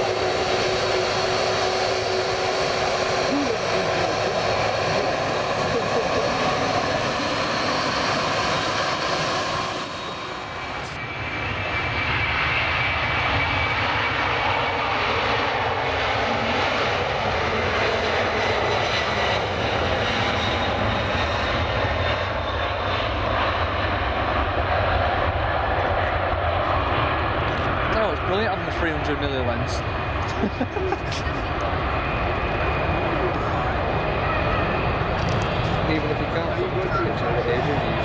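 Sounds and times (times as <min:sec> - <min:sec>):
jet engines roaring: 0:00.0 - 0:38.0.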